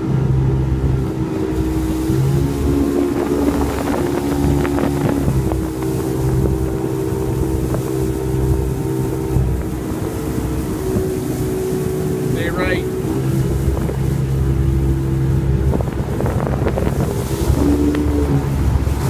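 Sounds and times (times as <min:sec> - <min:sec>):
motorboat engine running: 0:00.0 - 0:19.0
wind buffeting microphone: 0:00.0 - 0:19.0.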